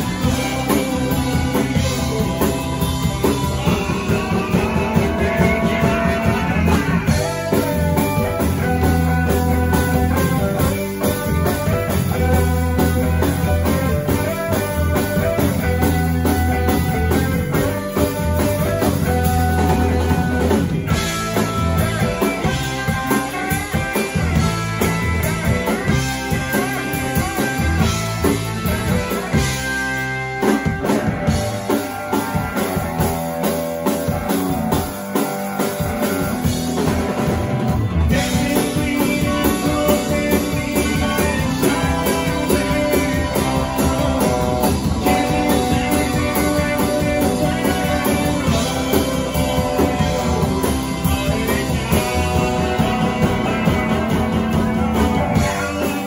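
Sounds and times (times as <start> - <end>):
drum kit: 0.0 - 56.0
electric bass: 0.0 - 56.0
electric guitar: 0.0 - 56.0
person singing: 38.0 - 56.0.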